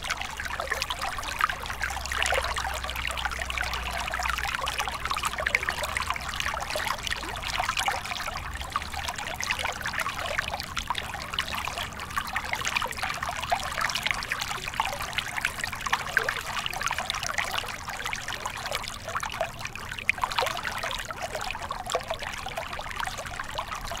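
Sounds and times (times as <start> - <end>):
water trickling and splashing: 0.0 - 24.0.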